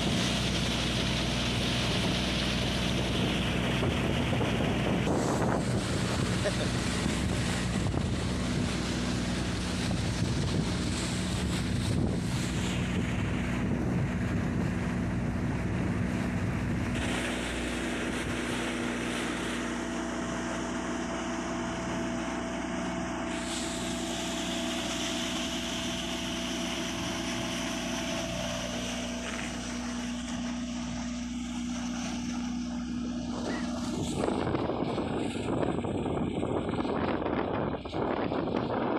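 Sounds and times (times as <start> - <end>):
boat diesel engine droning: 0.0 - 38.9
water rushing along hull: 0.0 - 38.9
wind buffeting microphone: 0.0 - 38.9.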